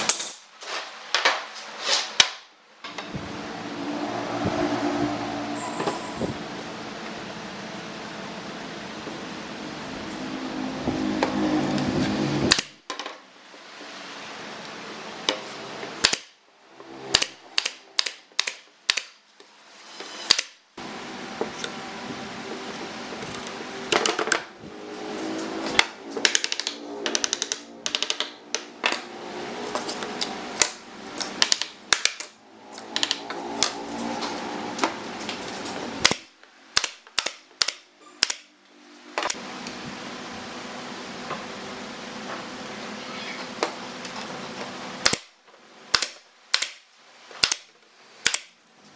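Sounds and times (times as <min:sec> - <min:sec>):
nail gun firing: 0:16.0 - 0:16.4, 0:17.1 - 0:19.2, 0:36.0 - 0:38.4, 0:45.0 - 0:45.3, 0:45.9 - 0:46.8, 0:47.4 - 0:48.6.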